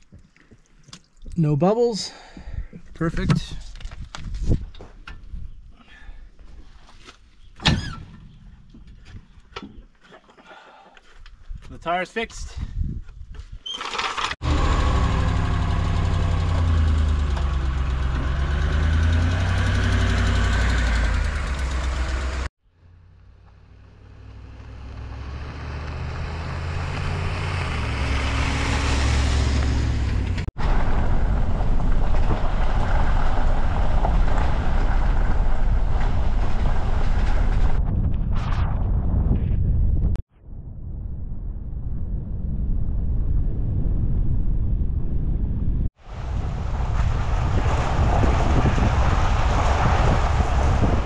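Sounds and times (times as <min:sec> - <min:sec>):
tyres rumbling on gravel: 0:13.8 - 0:22.5, 0:24.9 - 0:37.8, 0:46.0 - 0:51.0
truck engine running: 0:14.4 - 0:22.5.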